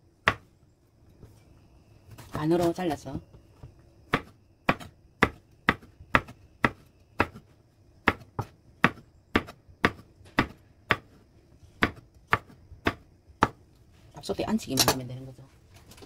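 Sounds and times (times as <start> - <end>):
knife chopping on wooden board: 3.6 - 11.2, 11.8 - 13.6.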